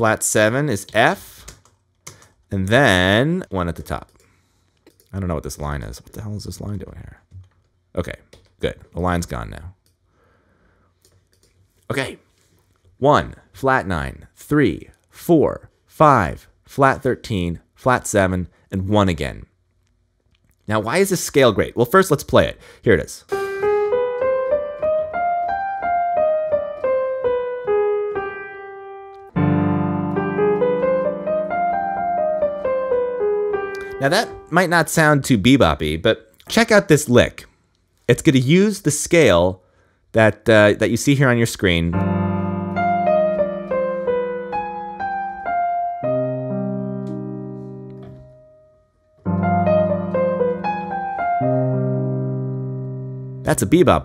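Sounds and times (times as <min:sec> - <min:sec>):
piano scale in single notes: 0:23.3 - 0:34.7, 0:41.8 - 0:54.0
held piano chord with bass note: 0:23.4 - 0:34.5, 0:41.9 - 0:48.6, 0:49.2 - 0:53.5.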